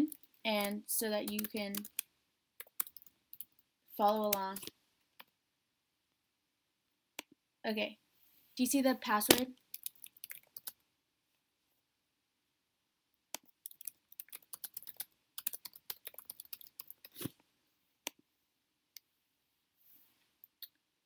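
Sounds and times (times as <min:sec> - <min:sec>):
typing on computer keyboard: 0:01.3 - 0:02.0, 0:02.6 - 0:04.7, 0:09.7 - 0:10.8, 0:13.4 - 0:17.2.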